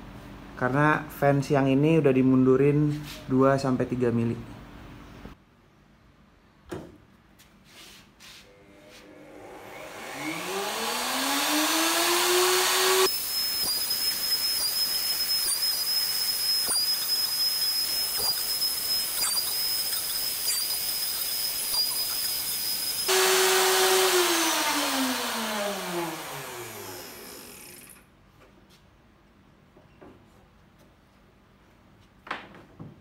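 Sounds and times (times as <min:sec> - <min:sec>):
router whining while cutting wood: 0:08.6 - 0:28.0.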